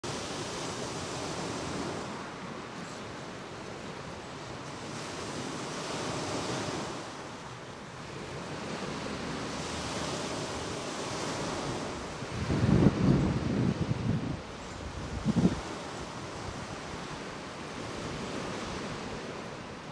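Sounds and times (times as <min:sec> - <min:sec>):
small waves washing onto beach: 0:00.0 - 0:19.9
wind buffeting microphone: 0:08.0 - 0:19.9.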